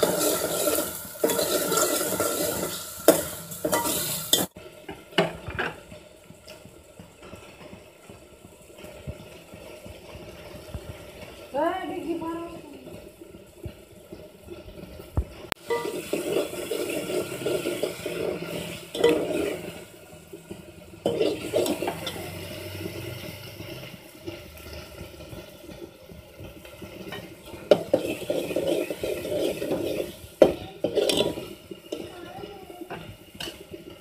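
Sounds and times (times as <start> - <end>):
food sizzling: 0.0 - 34.0
spoon scraping metal pot: 15.6 - 19.8, 21.0 - 22.3, 27.0 - 32.1.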